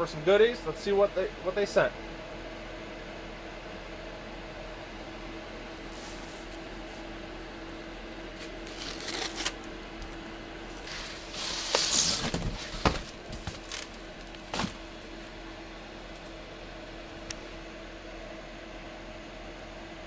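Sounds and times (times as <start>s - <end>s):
steady low hum: 0.0s - 20.0s
packing tape being slit and torn: 8.3s - 10.2s, 10.8s - 14.8s
cardboard scraping: 8.4s - 9.6s, 10.8s - 14.8s.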